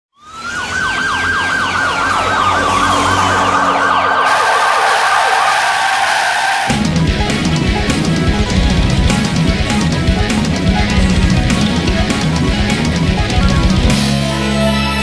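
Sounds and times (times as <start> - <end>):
siren-like wail falling in pitch: 0.1 - 6.9
heavy metal band with drums and guitar: 2.2 - 15.0.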